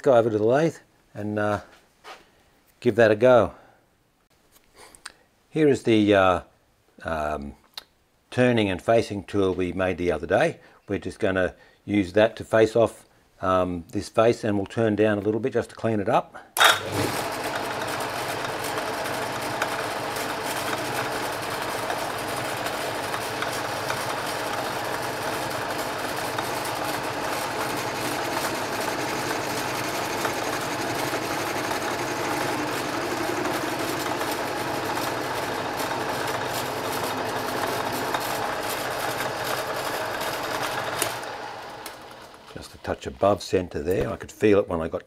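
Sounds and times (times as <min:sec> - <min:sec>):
metal lathe running: 0:16.6 - 0:42.6.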